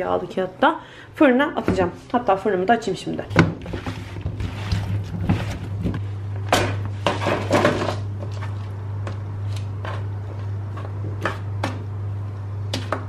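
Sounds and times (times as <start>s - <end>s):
steady low hum: 0.0s - 13.0s
food rustling and squishing: 3.5s - 6.0s.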